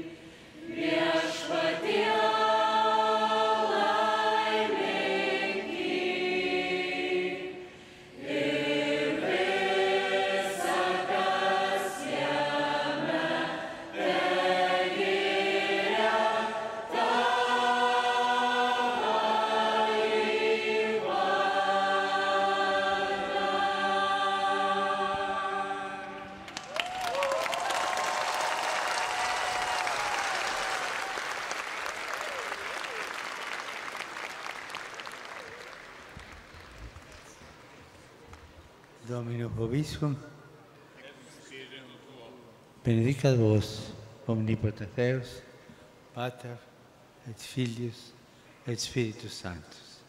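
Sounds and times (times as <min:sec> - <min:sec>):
mixed choir singing: 0:00.0 - 0:26.6.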